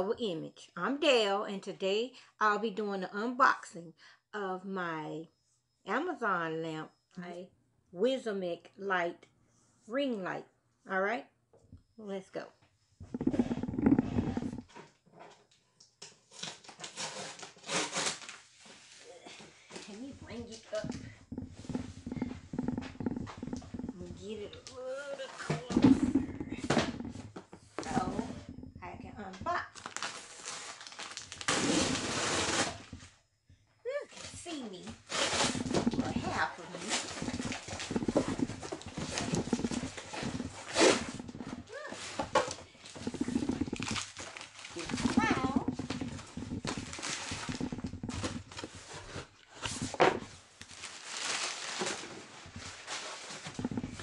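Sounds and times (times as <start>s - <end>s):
cardboard box scraping: 13.0s - 14.8s, 19.9s - 33.1s, 34.2s - 54.0s
tape ripping: 16.3s - 18.5s, 29.8s - 33.0s, 35.0s - 36.0s, 36.8s - 48.8s, 50.6s - 53.9s.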